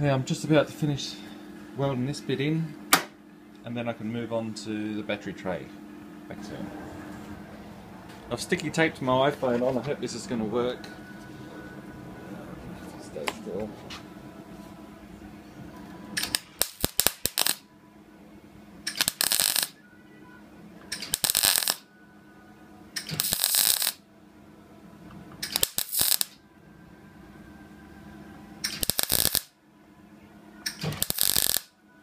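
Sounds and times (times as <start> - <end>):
low steady hum: 0.0 - 32.0
welding arc crackle: 16.2 - 17.6, 18.9 - 19.8, 21.0 - 21.8, 23.0 - 24.0, 25.4 - 26.4, 28.7 - 29.5, 30.7 - 31.7.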